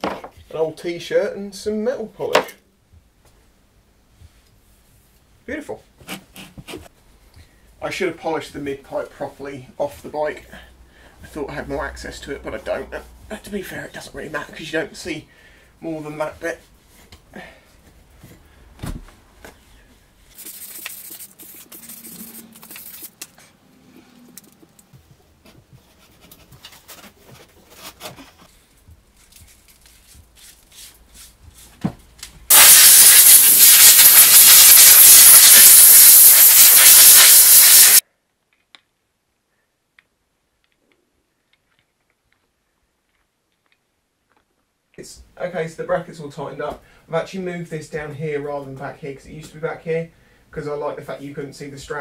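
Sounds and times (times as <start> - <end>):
loud steady hiss: 32.5 - 38.0.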